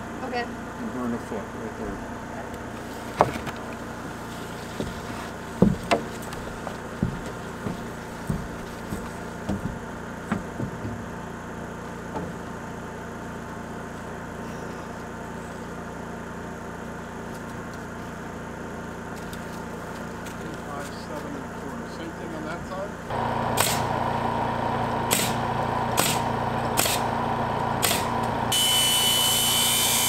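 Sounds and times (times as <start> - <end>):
motor humming: 1.0 - 18.1, 23.0 - 30.0
boots stepping on plywood: 2.8 - 11.2.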